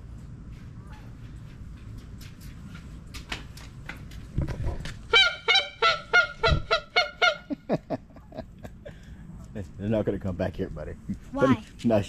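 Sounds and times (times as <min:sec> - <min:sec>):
goose call honks: 0:05.1 - 0:07.6.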